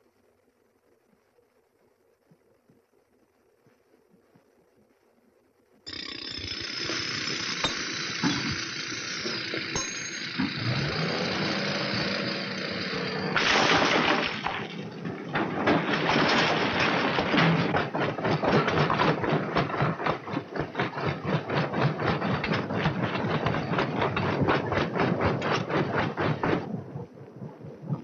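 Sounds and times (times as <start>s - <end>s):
truck engine running: 5.9s - 28.0s
rocks rattling and crashing: 13.4s - 27.0s.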